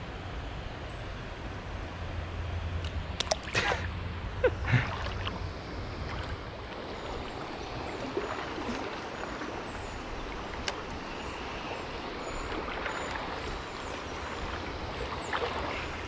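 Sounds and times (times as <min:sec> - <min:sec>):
creek water rushing: 0:02.8 - 0:16.0.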